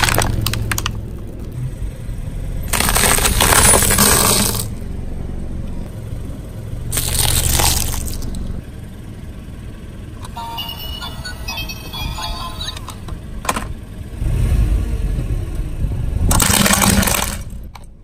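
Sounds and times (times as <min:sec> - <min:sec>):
tyre crushing objects on concrete: 0:00.0 - 0:00.9, 0:02.7 - 0:04.7
car engine humming: 0:00.0 - 0:18.0.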